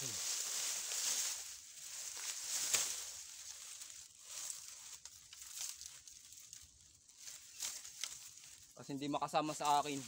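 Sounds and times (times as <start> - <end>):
bamboo cracking: 0.0 - 8.8
bamboo leaves rustling and scraping: 0.0 - 10.0.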